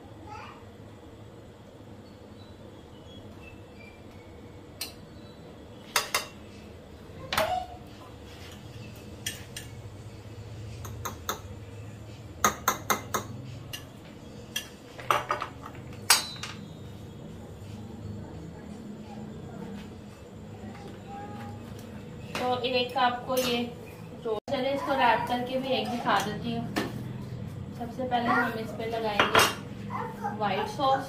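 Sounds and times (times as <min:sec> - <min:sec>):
metal utensils clinking on glass: 0:14.5 - 0:16.6.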